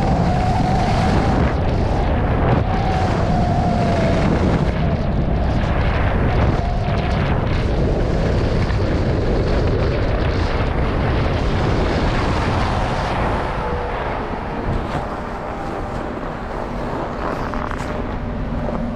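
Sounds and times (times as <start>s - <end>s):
wind buffeting microphone: 0.0s - 18.9s
skis sliding over snow: 14.6s - 18.9s.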